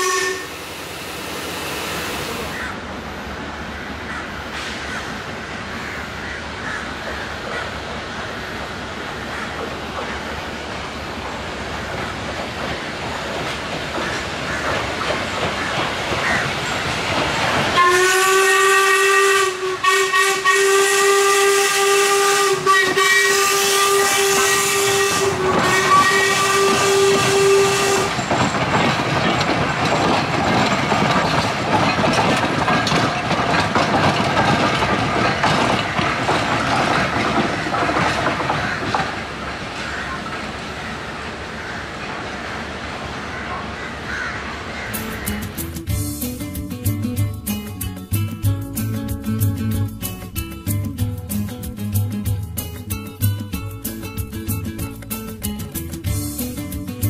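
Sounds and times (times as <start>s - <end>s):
steam whistle blast: 0.0s - 2.6s, 17.8s - 28.3s
steam hiss: 0.0s - 3.6s, 4.5s - 5.8s
train rolling: 0.0s - 57.0s.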